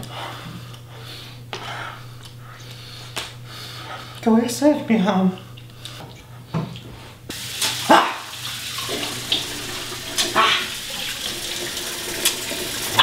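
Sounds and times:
faucet running into steel sink: 0:07.3 - 0:13.0
hands washing under water: 0:07.3 - 0:13.0.

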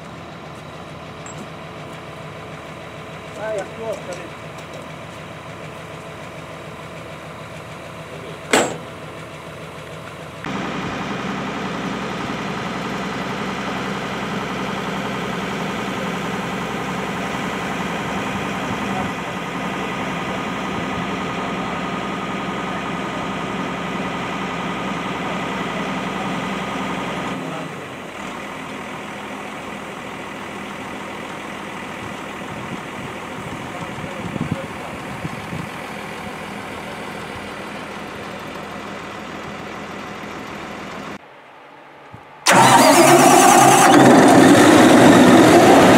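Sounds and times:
diesel engine running: 0:00.0 - 0:41.2, 0:42.4 - 0:45.9
metallic clank: 0:08.5 - 0:09.0.

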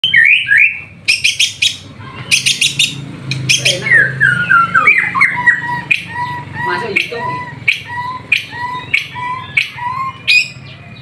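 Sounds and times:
bird singing whistled notes: 0:00.0 - 0:11.0
bird sharp clicking notes: 0:05.3 - 0:10.4.

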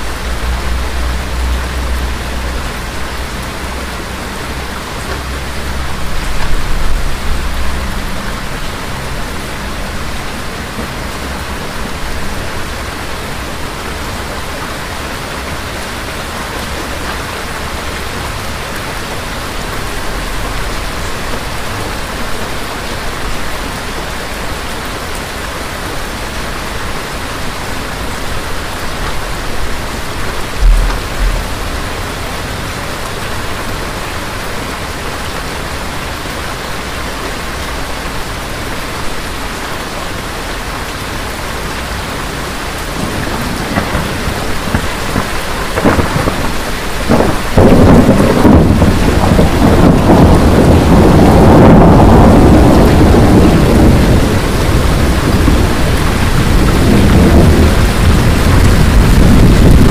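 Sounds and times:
thunder rumbling: 0:00.0 - 0:13.6, 0:16.0 - 0:22.4, 0:28.7 - 0:33.3, 0:42.8 - 0:59.9
steady rain: 0:00.0 - 0:59.9
thunder boom: 0:30.6 - 0:32.4, 0:43.6 - 0:54.2.

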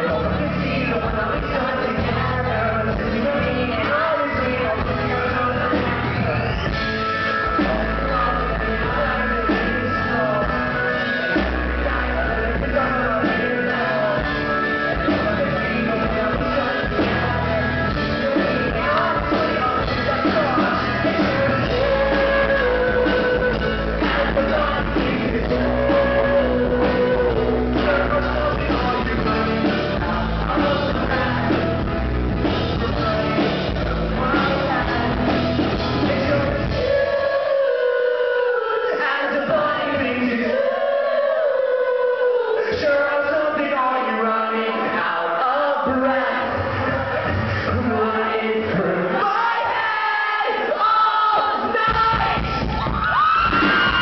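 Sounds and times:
man singing: 0:00.0 - 0:54.0
steady drum beat: 0:11.4 - 0:37.0.

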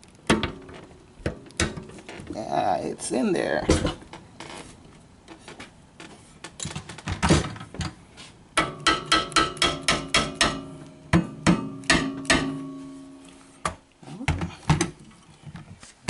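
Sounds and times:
rubber mallet striking metal: 0:08.6 - 0:13.2.

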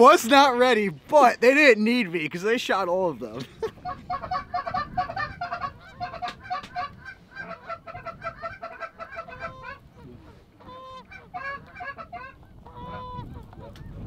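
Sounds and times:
goose honking: 0:03.9 - 0:13.8.

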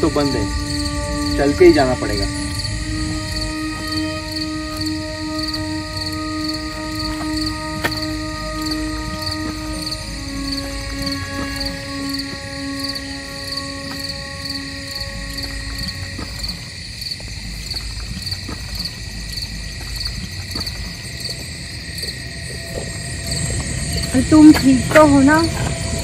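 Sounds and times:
low held tone: 0:00.0 - 0:16.7
crickets chirping: 0:00.0 - 0:26.0.

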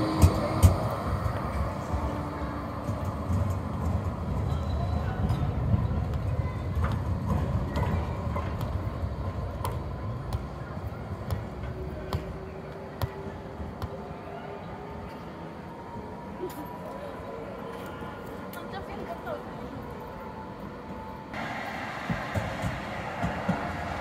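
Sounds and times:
tram rumbling along rails: 0:00.0 - 0:11.0, 0:21.1 - 0:24.0.

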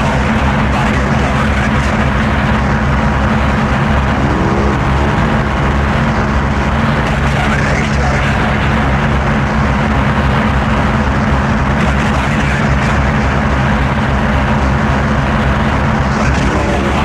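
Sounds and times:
dense wall of electronic noise: 0:00.0 - 0:17.0
flickering low drone: 0:00.2 - 0:17.0
rising sweeps: 0:03.6 - 0:07.1.

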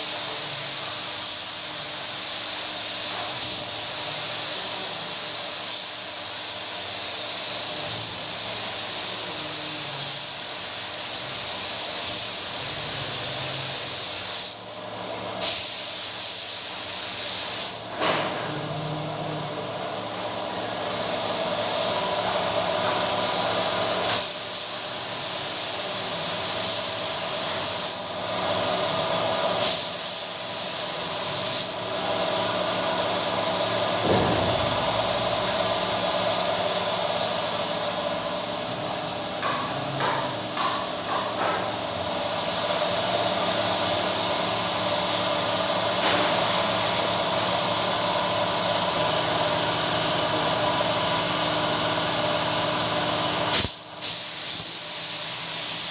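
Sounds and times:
spray gun hissing: 0:00.0 - 0:14.6, 0:15.4 - 0:17.9, 0:24.1 - 0:28.1, 0:29.6 - 0:31.8, 0:53.5 - 0:55.9
air compressor humming: 0:00.0 - 0:55.9.

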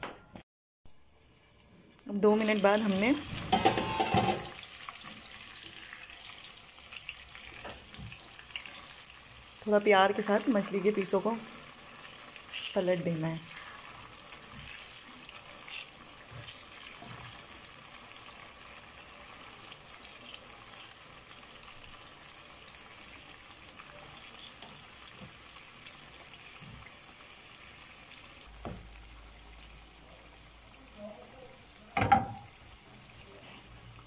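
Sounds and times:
food sizzling in oil: 0:00.9 - 0:34.0
spoon knocking against pan: 0:03.5 - 0:04.6, 0:32.0 - 0:32.5.

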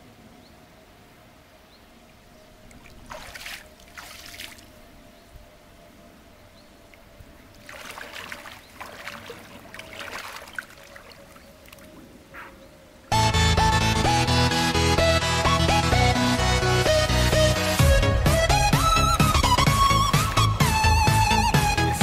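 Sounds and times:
water splashing around wading legs: 0:02.7 - 0:04.8, 0:06.9 - 0:12.0.

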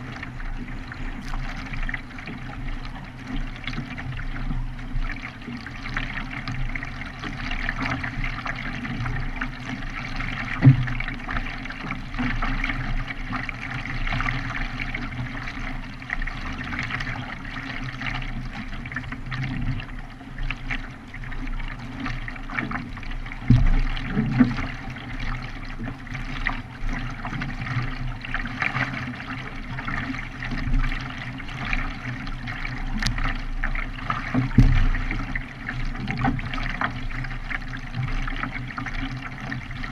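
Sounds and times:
kayak paddle splashing water: 0:00.0 - 0:39.9
low thumps: 0:34.5 - 0:35.2.

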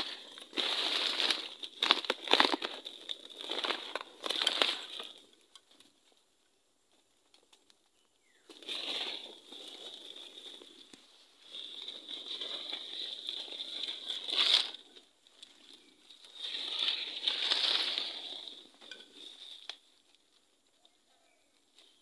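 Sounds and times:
dry leaves rustling and crunching: 0:00.0 - 0:05.4, 0:08.5 - 0:20.9.

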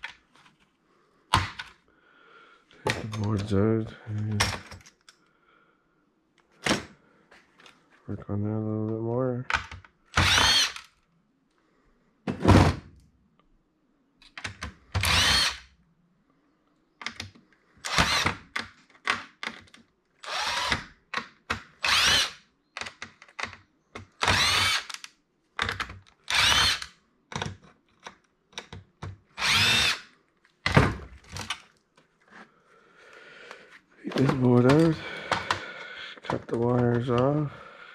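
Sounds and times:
cordless drill whining: 0:10.2 - 0:10.9, 0:15.0 - 0:15.7, 0:17.8 - 0:18.4, 0:20.2 - 0:20.8, 0:21.8 - 0:22.4, 0:24.2 - 0:25.0, 0:26.2 - 0:26.9, 0:29.4 - 0:30.1.

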